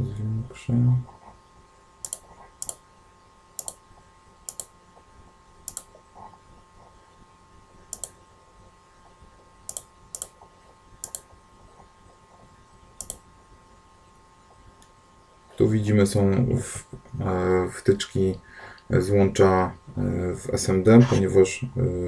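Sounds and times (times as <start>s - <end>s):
computer mouse clicking: 2.0s - 2.8s, 3.6s - 3.8s, 4.5s - 4.7s, 5.7s - 6.0s, 7.9s - 8.2s, 9.7s - 10.4s, 11.0s - 11.3s, 13.0s - 13.2s.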